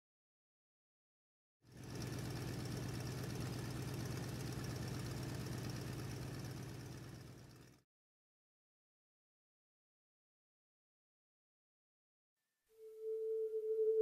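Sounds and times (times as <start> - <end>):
engine droning: 1.7 - 7.8.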